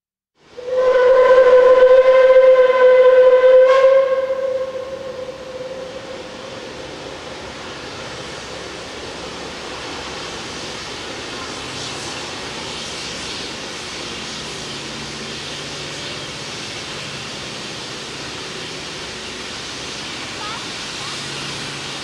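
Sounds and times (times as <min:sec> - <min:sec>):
steam locomotive whistle blast: 0:00.6 - 0:06.8
steady rushing noise: 0:04.3 - 0:22.0.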